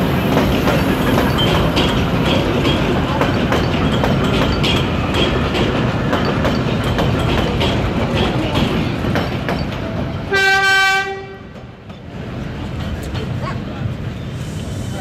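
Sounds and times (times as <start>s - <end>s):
train wheel rumble: 0.0s - 15.0s
train horn: 10.3s - 11.6s.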